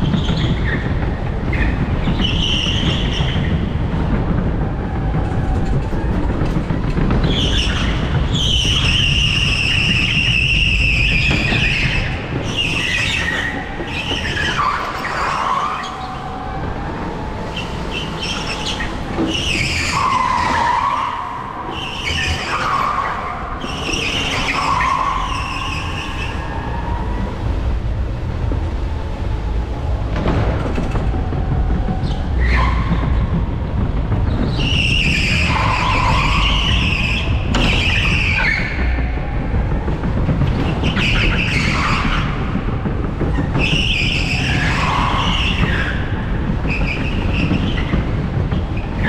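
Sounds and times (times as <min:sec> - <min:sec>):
go-kart rolling rumble: 0:00.0 - 0:49.0
tyres squealing: 0:07.1 - 0:27.5, 0:34.3 - 0:49.0.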